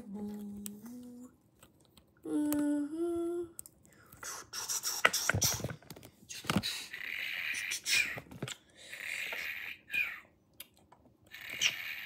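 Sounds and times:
person humming: 0.0s - 1.4s, 2.2s - 5.0s.

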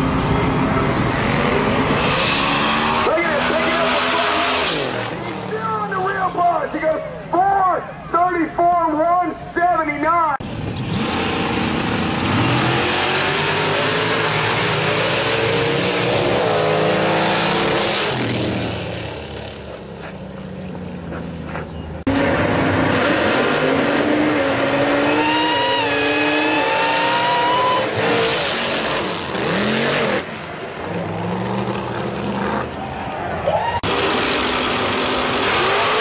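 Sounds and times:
drag race engines accelerating: 0.0s - 8.6s, 10.4s - 36.0s
tire squeal: 1.8s - 5.2s, 24.9s - 29.6s.

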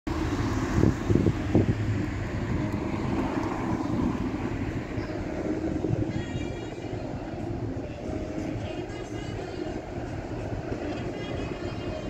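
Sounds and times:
wind buffeting microphone: 0.1s - 12.0s.

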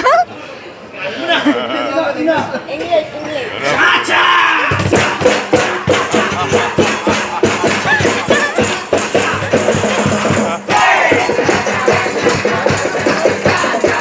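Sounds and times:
hand drums beaten fast: 4.7s - 14.0s
rattling shaker: 5.0s - 14.0s.

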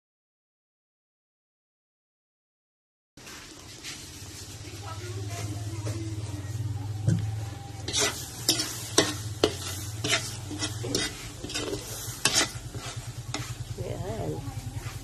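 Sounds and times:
butter sizzling in a wok: 3.2s - 15.0s
metal spoon scraping a pan: 7.7s - 15.0s.

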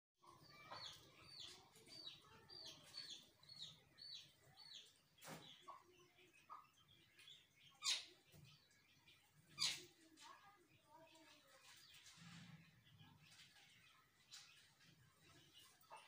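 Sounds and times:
mynas chirping: 0.2s - 12.0s.

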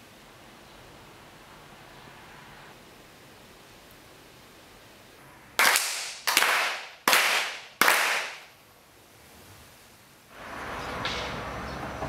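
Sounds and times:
hand claps in unison: 5.6s - 8.5s.

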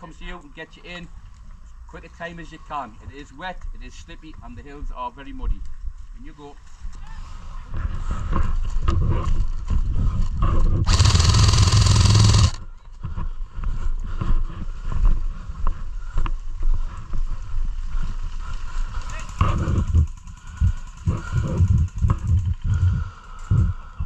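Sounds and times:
loud burst of noise: 10.9s - 12.6s.

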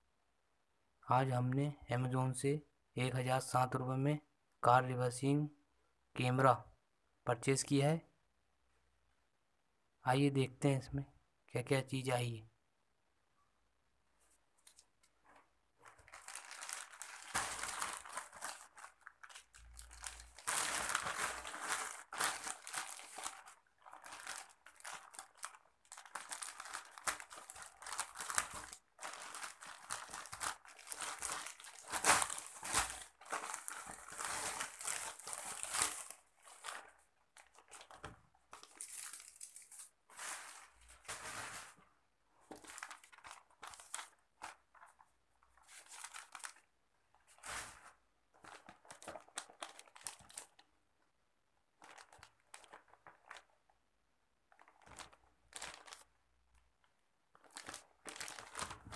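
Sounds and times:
plastic mailer bag crinkling: 15.8s - 41.8s, 42.5s - 46.7s, 48.4s - 50.6s, 51.8s - 53.6s, 54.5s - 56.1s, 57.4s - 58.9s
paper rustling: 26.2s - 41.8s.

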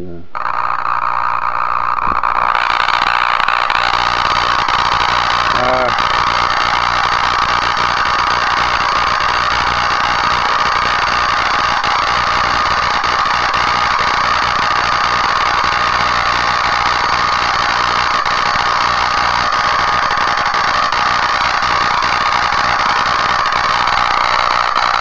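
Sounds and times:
low hum: 0.0s - 7.7s
tesla coil spark buzzing: 0.3s - 25.0s.

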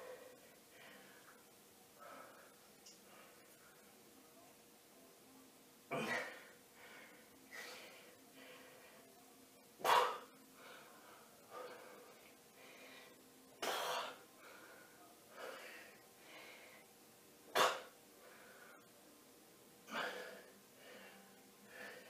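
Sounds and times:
man breathing softly: 6.8s - 9.2s, 10.5s - 13.3s, 14.3s - 16.9s, 18.2s - 19.0s, 19.9s - 22.0s.

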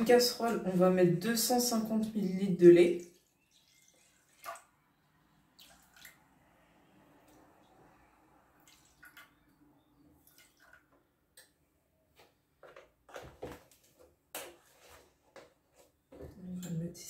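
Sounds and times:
milk pouring into a saucepan: 3.0s - 6.3s.

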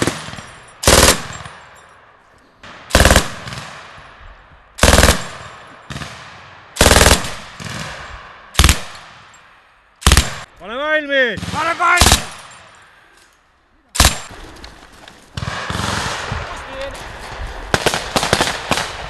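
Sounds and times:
machine gun bursts with echo: 0.0s - 1.5s, 2.9s - 3.7s, 4.8s - 6.2s, 6.8s - 8.0s.

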